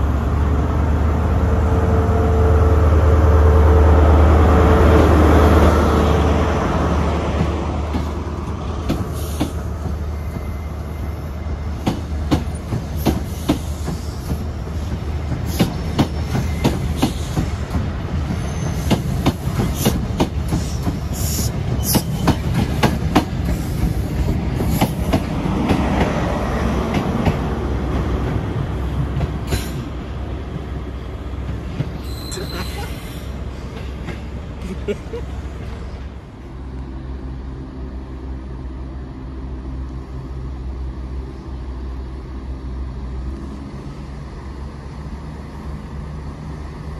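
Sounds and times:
train wheels clicking over rail joints: 7.4s - 10.5s, 11.8s - 26.2s, 26.8s - 30.2s.

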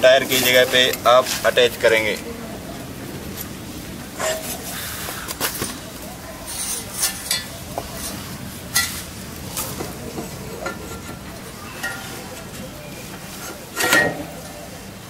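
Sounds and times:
metal clinks and scrapes: 4.2s - 4.7s, 6.4s - 12.7s, 13.3s - 14.5s.

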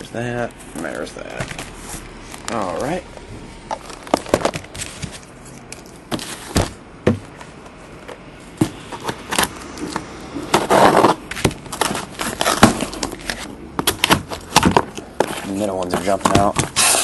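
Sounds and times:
cardboard tearing: 10.5s - 17.0s.

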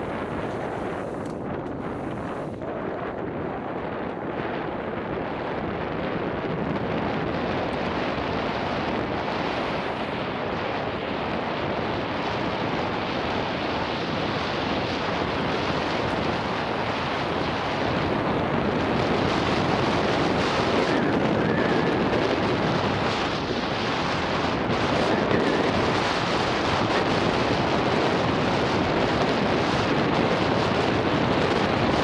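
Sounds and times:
wind rushing over microphone: 0.0s - 32.0s.

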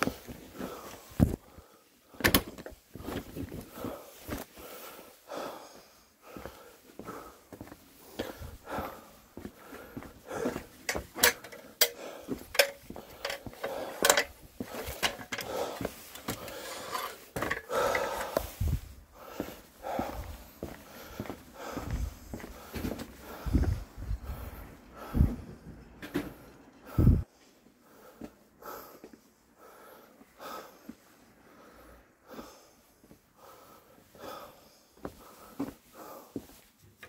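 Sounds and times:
gear clattering and rustling: 10.8s - 18.3s.

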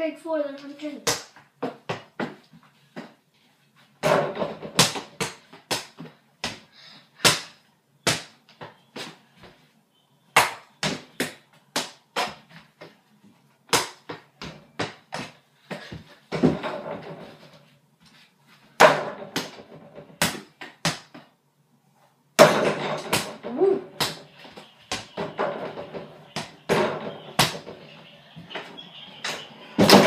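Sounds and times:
basketball bouncing on floor: 1.1s - 2.4s, 4.0s - 6.6s, 13.8s - 17.3s, 24.9s - 27.8s
ball hitting hoop: 4.0s - 6.6s, 16.3s - 17.4s, 18.8s - 21.1s, 22.4s - 30.0s.

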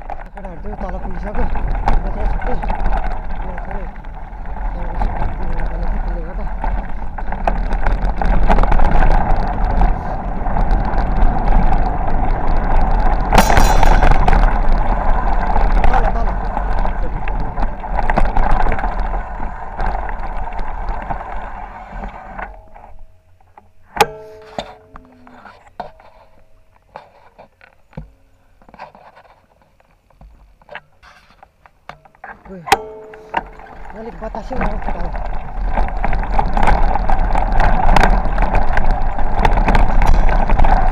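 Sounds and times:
bicycle rolling on gravel: 0.0s - 30.2s, 30.9s - 40.9s
sharp clatter: 13.1s - 18.9s
wind buffeting microphone: 33.5s - 40.9s.

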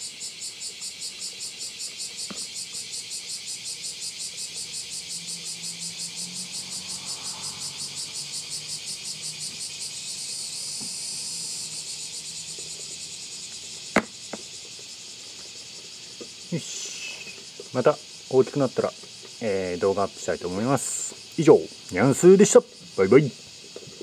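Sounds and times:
insects singing: 0.0s - 24.0s.

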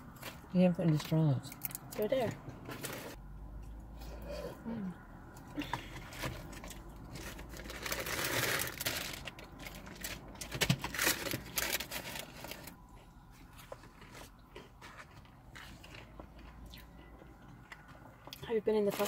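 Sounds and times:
paper bags rustling: 6.1s - 12.8s.

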